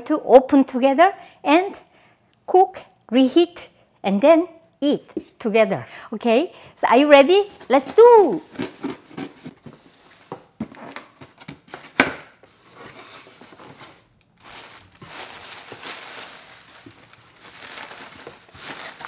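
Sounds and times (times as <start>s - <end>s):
tissue paper rustling: 12.5s - 19.0s
packing tape being slit: 13.2s - 19.0s.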